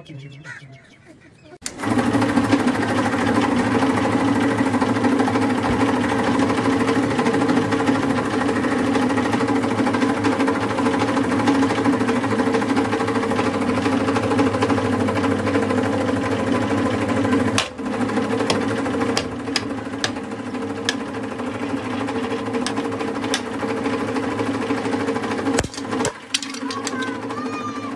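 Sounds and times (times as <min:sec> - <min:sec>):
hydraulic pump motor humming: 0:01.6 - 0:27.9
plastic toy cracking: 0:25.6 - 0:27.2.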